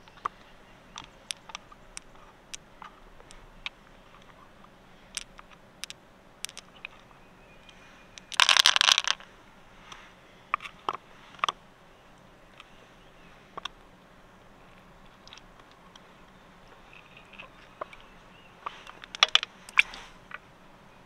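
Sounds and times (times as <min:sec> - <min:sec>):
pearls and shells clicking: 0:00.0 - 0:09.3, 0:14.7 - 0:20.4.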